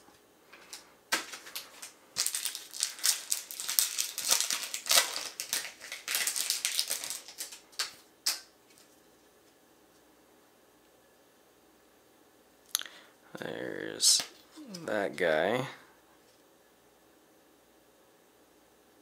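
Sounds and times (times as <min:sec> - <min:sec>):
card wrapper crinkling: 0:00.7 - 0:08.9.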